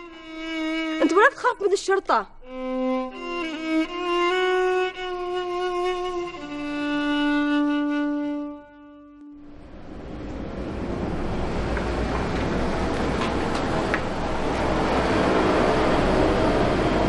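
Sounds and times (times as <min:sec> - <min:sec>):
music with long held notes: 0:00.0 - 0:01.3, 0:02.4 - 0:10.0
car approaching: 0:06.0 - 0:17.0.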